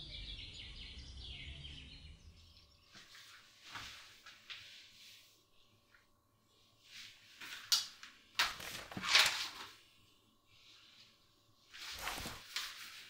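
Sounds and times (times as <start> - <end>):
paper rustling: 7.3 - 9.8, 11.7 - 13.0.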